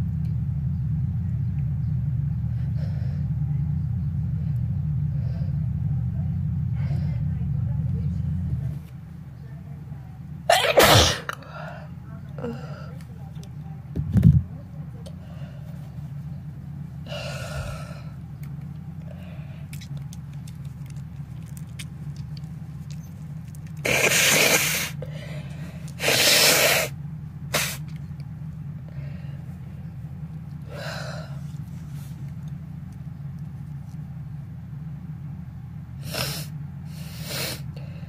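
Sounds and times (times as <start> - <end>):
person sneezing: 10.5 - 11.4, 23.9 - 24.9, 26.0 - 26.9
nose blowing: 23.8 - 25.0, 26.0 - 26.9, 27.5 - 27.8
sniffs and breaths: 30.7 - 32.4, 36.0 - 38.0.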